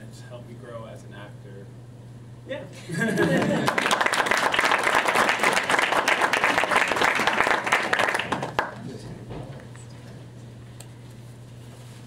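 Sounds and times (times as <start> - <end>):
crowd applauding: 3.2 - 8.9.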